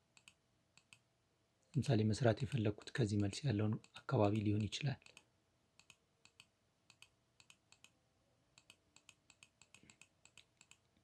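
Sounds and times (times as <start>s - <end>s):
faint computer mouse clicks: 0.1s - 1.0s, 2.5s - 8.0s, 8.6s - 10.9s.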